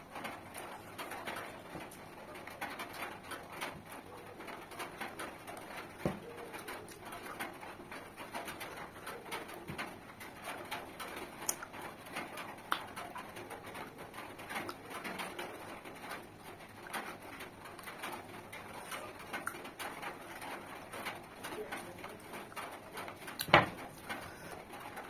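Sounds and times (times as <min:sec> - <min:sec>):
doves cooing: 0:02.1 - 0:11.3
wet chewing and smacking: 0:10.6 - 0:15.6, 0:16.8 - 0:21.1, 0:22.5 - 0:24.5.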